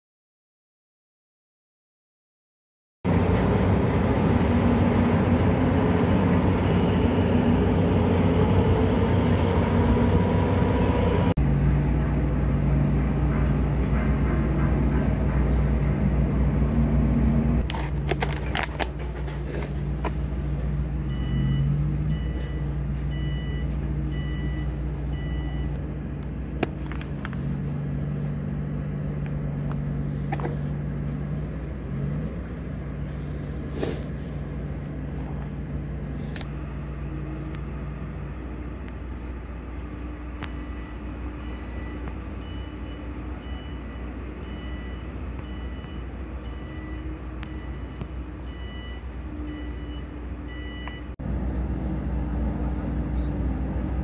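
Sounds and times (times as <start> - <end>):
diesel machinery engines running: 3.1 - 54.0
warning alarm beeping: 40.5 - 51.2.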